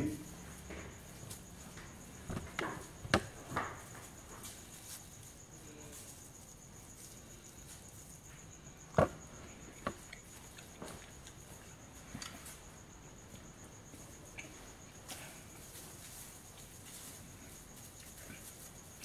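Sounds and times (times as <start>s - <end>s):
soft knocks and rustles: 0.6s - 6.2s.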